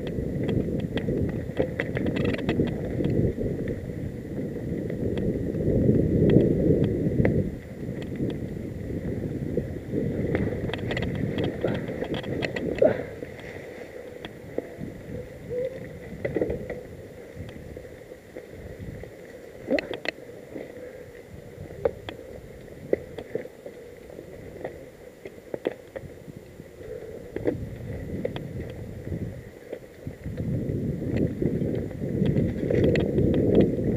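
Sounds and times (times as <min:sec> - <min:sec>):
bike tyre rumble on trail: 0:00.0 - 0:33.9.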